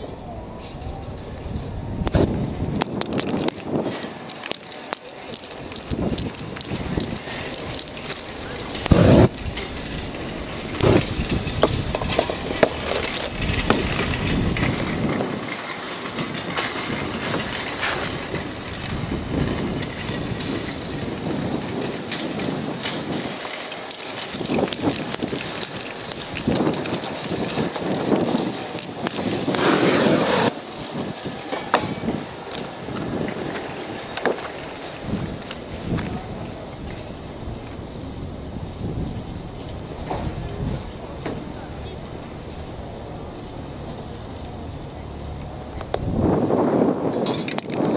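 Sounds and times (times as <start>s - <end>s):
flame burst from spray can: 0.6s - 9.4s, 10.8s - 11.9s, 23.8s - 30.5s
paper rustling and crackling: 2.8s - 18.3s, 21.8s - 30.5s.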